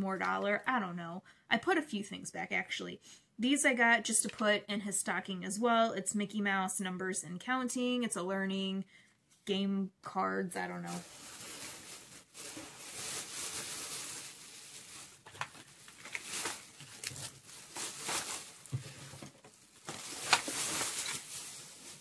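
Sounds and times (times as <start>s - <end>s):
plastic bag rustling: 10.7s - 22.0s.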